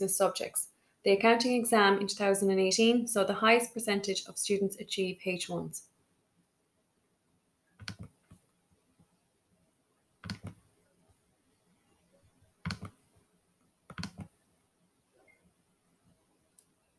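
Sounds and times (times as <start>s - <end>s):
mouse clicks: 7.8s - 8.4s, 10.2s - 10.6s, 12.6s - 13.0s, 13.9s - 14.3s.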